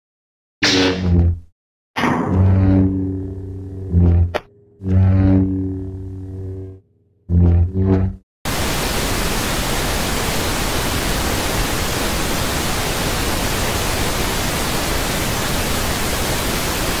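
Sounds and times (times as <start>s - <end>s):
tv static hiss: 8.5s - 17.0s.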